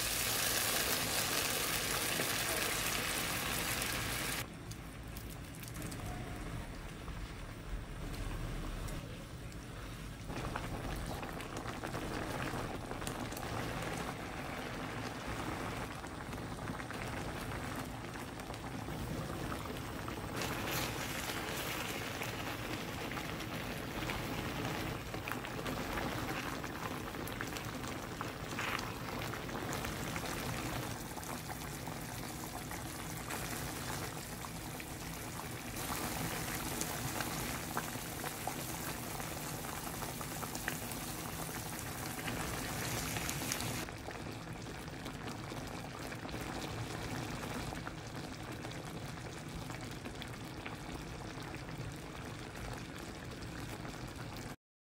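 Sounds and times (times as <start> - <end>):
sauce bubbling in a frying pan: 0.0 - 8.2, 9.4 - 54.6.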